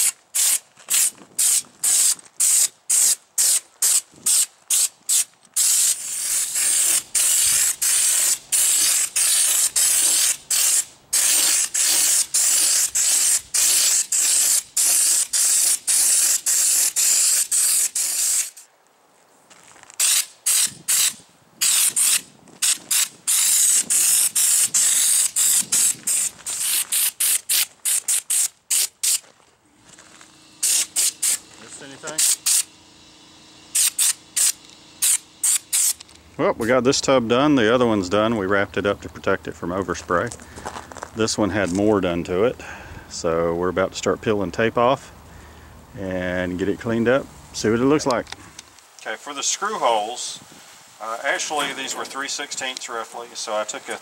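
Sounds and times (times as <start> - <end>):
spray gun hissing: 0.0 - 18.6, 20.0 - 29.2, 30.5 - 36.0.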